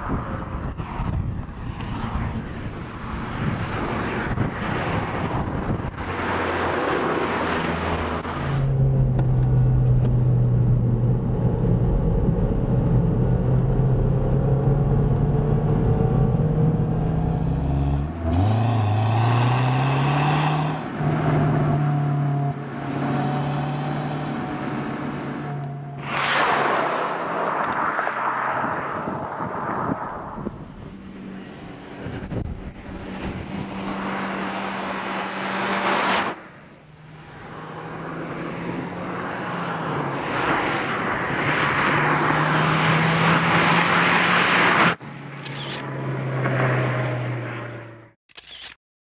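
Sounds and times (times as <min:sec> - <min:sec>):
passing car and road noise: 0:00.0 - 0:48.2
car engine drone: 0:00.0 - 0:48.7.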